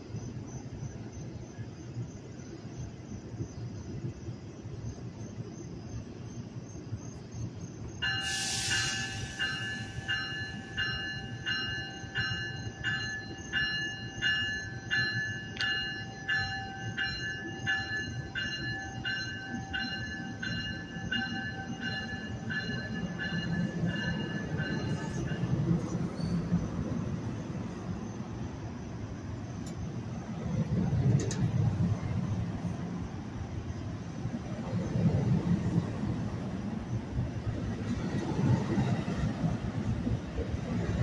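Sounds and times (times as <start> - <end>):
low train rumble: 0.0 - 41.0
train bell ringing: 8.0 - 26.6
air hiss: 8.2 - 10.6.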